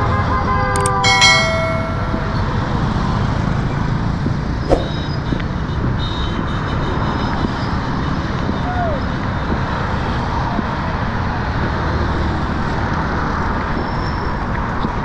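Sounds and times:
bright ringing tone: 0.8 - 2.6
road traffic passing: 0.8 - 6.0.

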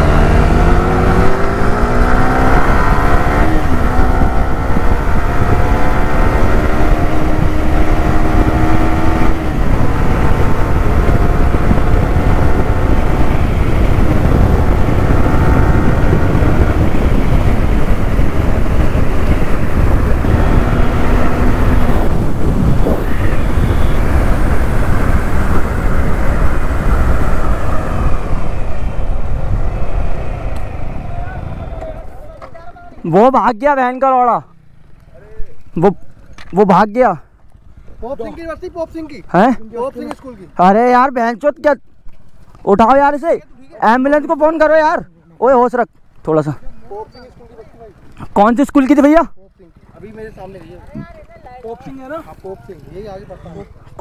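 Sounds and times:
wind noise on microphone: 0.0 - 32.1
motorcycle engine accelerating: 0.0 - 41.2.

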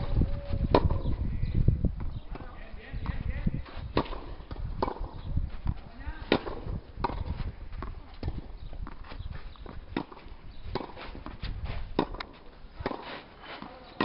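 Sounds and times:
tennis ball hit by racket: 0.7 - 1.1, 3.9 - 5.2, 6.2 - 9.0, 9.9 - 11.4, 12.0 - 14.0
ball bouncing on clay court: 4.0 - 11.4.

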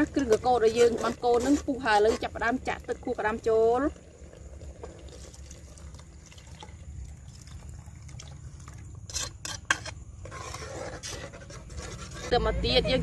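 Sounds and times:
liquid pouring into a pot: 0.0 - 9.8.

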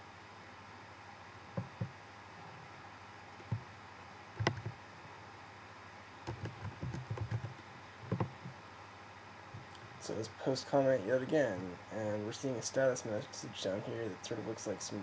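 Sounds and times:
faint steady hiss: 0.0 - 15.0
keyboard taps: 1.6 - 1.9, 4.4 - 4.7, 6.3 - 8.5
computer mouse clicks: 4.4 - 4.8, 6.2 - 8.6.

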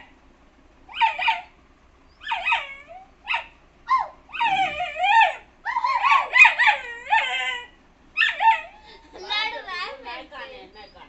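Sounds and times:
puppy whining and yelping: 0.9 - 1.5, 2.1 - 9.0.

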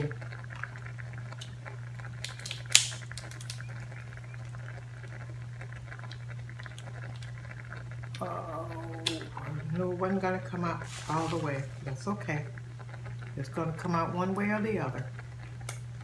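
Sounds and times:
steady low hum: 0.0 - 16.0
crab shell cracking: 0.3 - 4.2, 5.1 - 9.7, 15.2 - 16.0.

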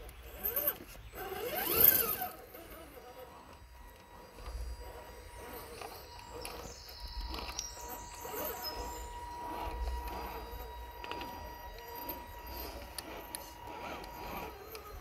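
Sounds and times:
small electric motor whining: 0.0 - 15.0
small clicks: 10.8 - 15.0.

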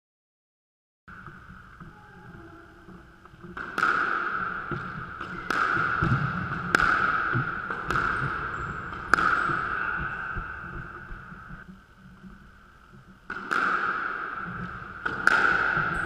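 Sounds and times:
squash ball cracking off rackets: 3.3 - 11.5, 13.2 - 16.0.

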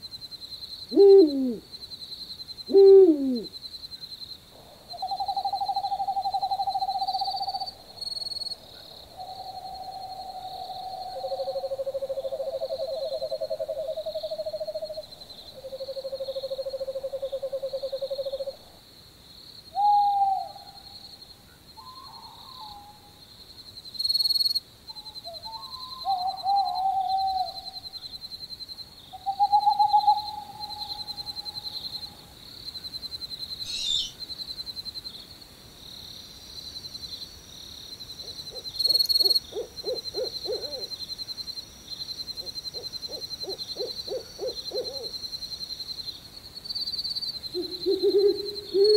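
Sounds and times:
owl hoots: 0.9 - 1.6, 2.7 - 3.6, 4.6 - 7.7, 19.8 - 20.8, 21.8 - 23.1, 25.0 - 27.7, 29.2 - 32.1, 33.7 - 34.2, 38.2 - 40.9, 42.4 - 45.1, 47.5 - 48.9.

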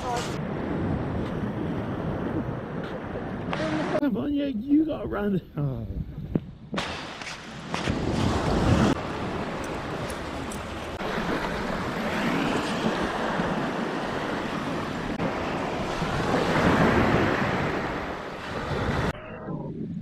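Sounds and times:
wind on microphone: 0.0 - 4.0, 4.9 - 20.0
surf washing onto beach: 6.9 - 19.1.

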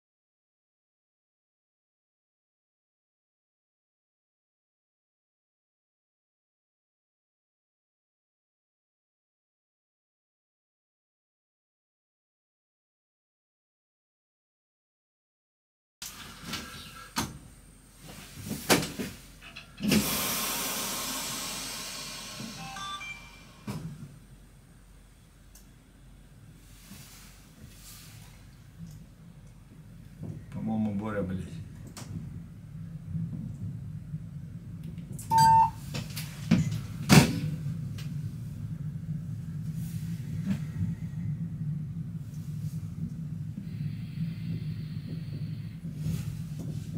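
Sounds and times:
low hum in locomotive cab: 16.0 - 46.9
compressed air hiss: 19.8 - 22.6
short electronic beep: 22.6 - 23.7, 35.3 - 35.8.

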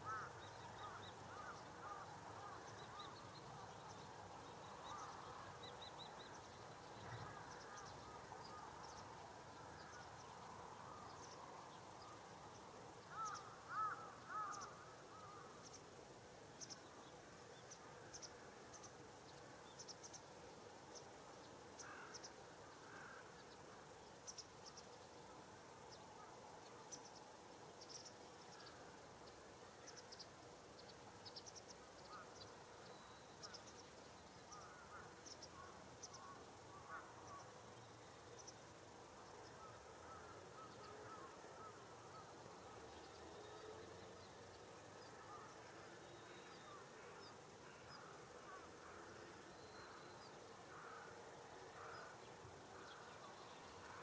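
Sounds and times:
crows cawing faintly: 0.0 - 3.7, 4.7 - 5.6, 7.0 - 8.9, 13.0 - 15.8, 21.8 - 23.9, 32.0 - 32.6, 34.5 - 37.7, 39.4 - 42.8, 44.9 - 54.0.

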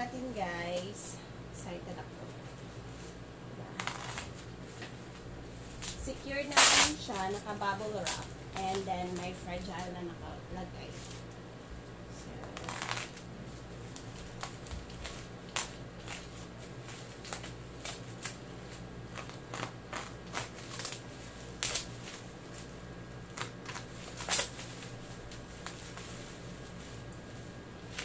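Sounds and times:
bubble wrap crackling: 1.8 - 11.3, 12.2 - 28.0
box cutter slicing tape: 6.5 - 7.2.

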